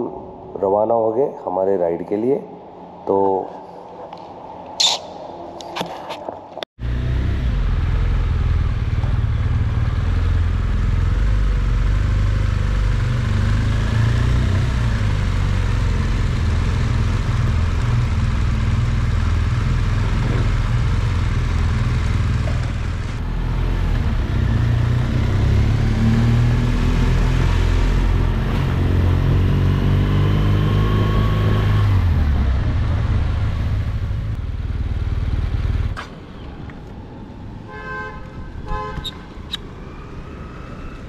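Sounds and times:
motorcycle engine running: 6.8 - 25.4, 31.9 - 36.0.

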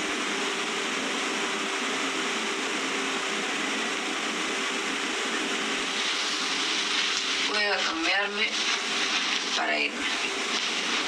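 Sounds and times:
even hiss: 5.7 - 11.0.

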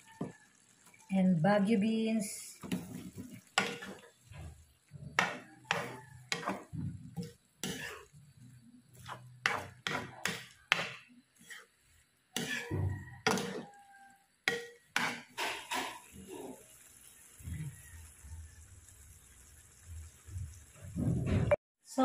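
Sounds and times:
spatula scraping a wok: 2.6 - 16.6.

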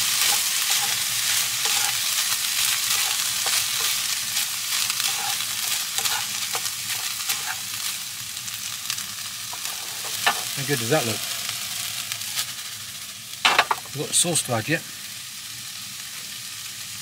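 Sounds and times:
utensil scraping pan: 0.0 - 7.7, 9.5 - 10.6
food sizzling in a frying pan: 0.0 - 17.0.

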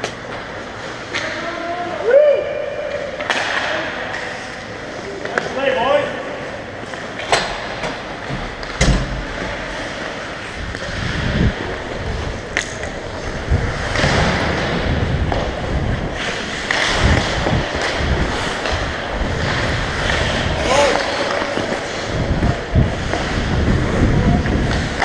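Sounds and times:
ice skate blades scraping: 9.7 - 25.0
wind over microphone: 10.5 - 25.0.

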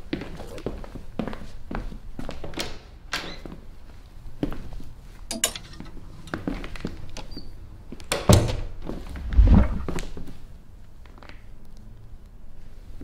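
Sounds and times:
heavy thuds: 9.0 - 10.1.

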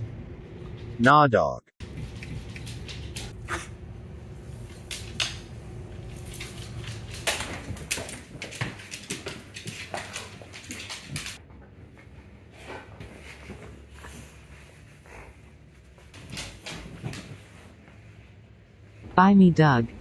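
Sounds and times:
dog claws clicking on hardwood floor: 1.8 - 3.4, 4.6 - 11.4.

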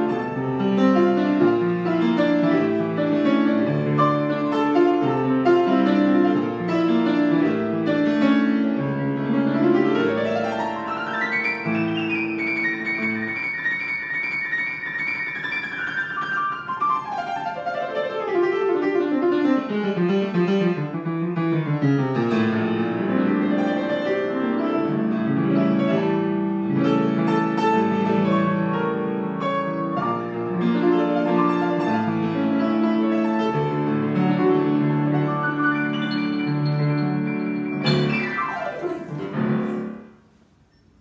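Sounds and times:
grand piano playing: 0.0 - 41.0.

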